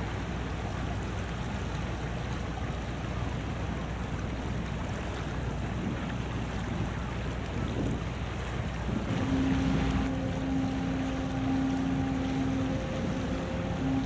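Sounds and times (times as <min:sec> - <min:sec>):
wind on microphone: 0:04.3 - 0:14.0
low rumble: 0:08.8 - 0:14.0.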